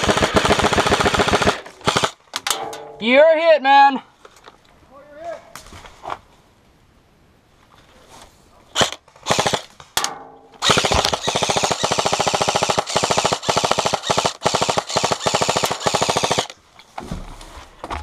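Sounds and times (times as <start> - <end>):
airsoft rifle firing: 0.0 - 2.7, 8.8 - 16.5.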